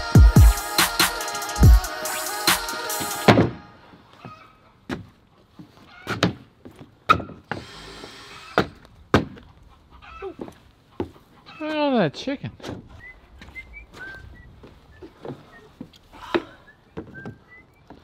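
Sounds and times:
background music: 0.0 - 3.9.

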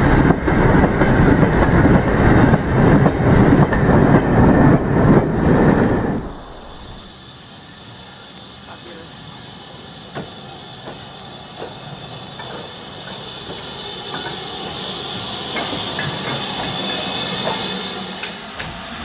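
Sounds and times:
model train hissing: 5.6 - 19.0.

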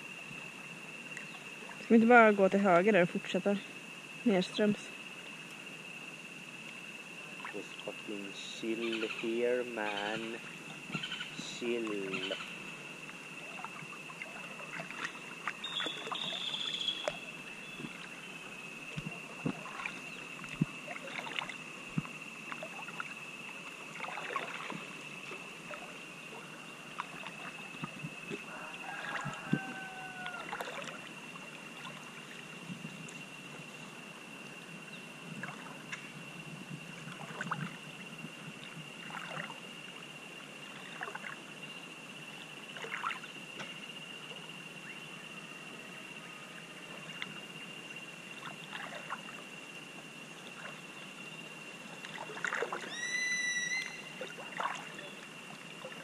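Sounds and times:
river water lapping and splashing: 0.0 - 56.0
brief pitched call: 52.9 - 54.0.

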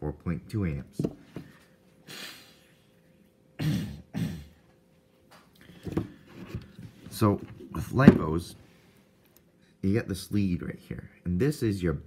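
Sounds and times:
man clearing throat: 3.6 - 4.6.

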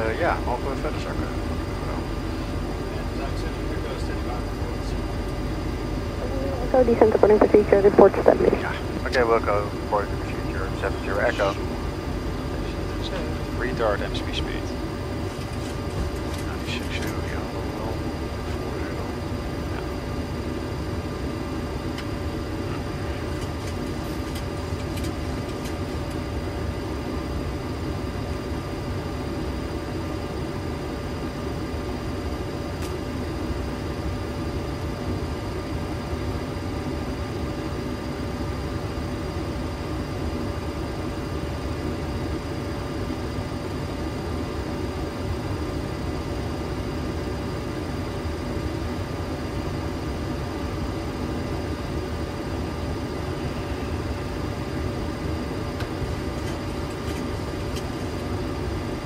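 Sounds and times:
steady whining tones: 0.0 - 26.2.

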